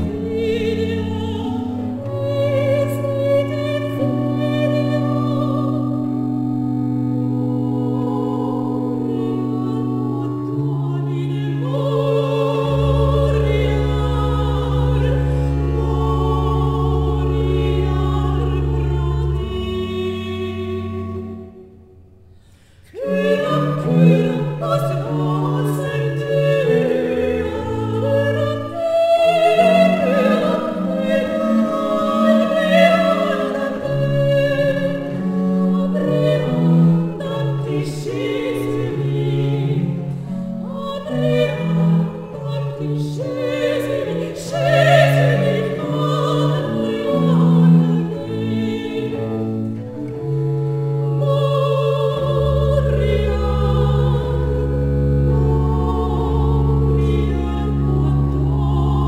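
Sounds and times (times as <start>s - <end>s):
viola da gamba: 0.0s - 21.6s, 23.0s - 59.0s
organ: 0.0s - 21.7s, 22.9s - 59.0s
women's voices singing together: 22.9s - 39.8s, 40.7s - 49.3s.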